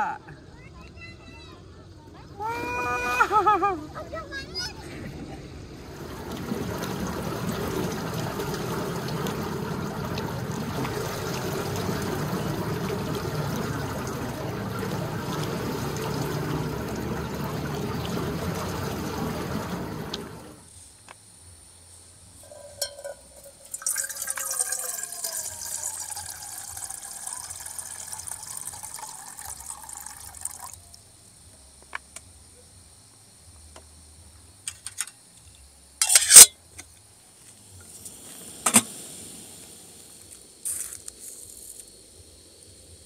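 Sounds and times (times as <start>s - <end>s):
liquid pouring into container: 5.9s - 20.6s, 22.5s - 30.9s.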